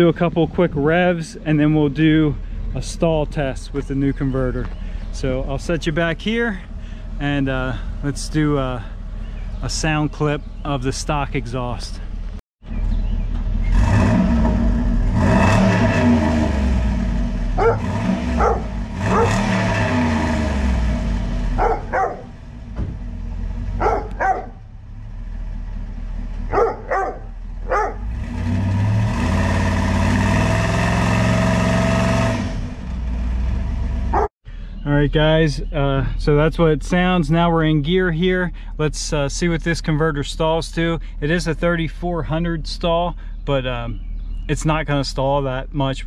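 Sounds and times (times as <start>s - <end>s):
truck engine revving: 12.8s - 34.3s.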